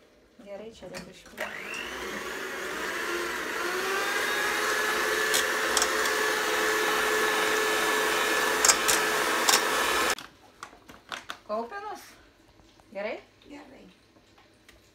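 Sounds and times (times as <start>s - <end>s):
electric hand mixer whining: 1.4s - 10.2s.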